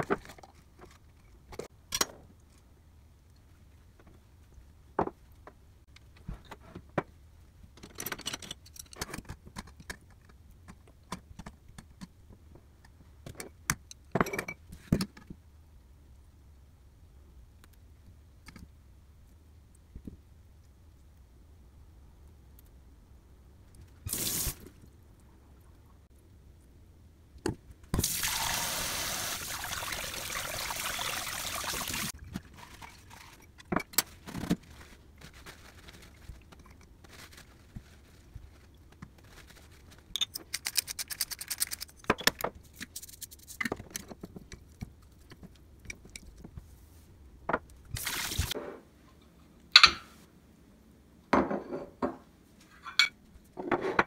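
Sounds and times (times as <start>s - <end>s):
tap water running: 24.1s - 24.6s, 28.0s - 32.1s, 48.0s - 48.6s
paper towel crinkling: 34.1s - 40.1s.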